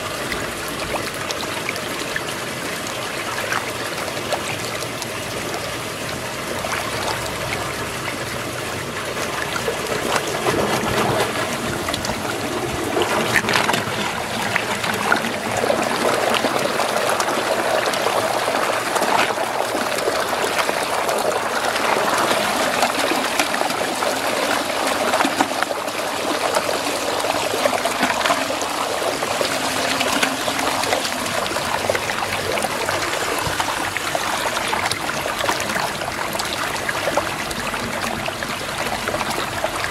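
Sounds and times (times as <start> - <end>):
water sloshing and splashing: 0.0 - 39.9
water swirling down a drain: 0.0 - 39.9.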